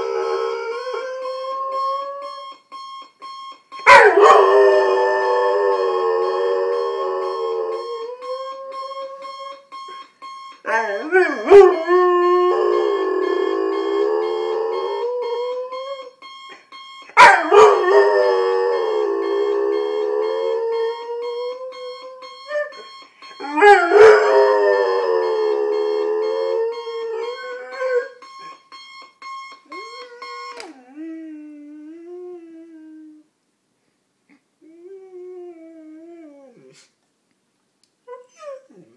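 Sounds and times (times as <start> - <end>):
alarm clock beeping: 0.0 - 30.7.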